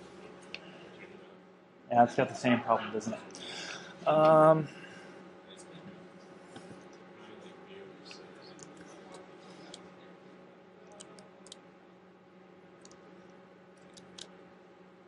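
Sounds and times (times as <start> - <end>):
computer keys clicking: 10.9 - 11.6, 12.8 - 13.0, 13.8 - 14.3.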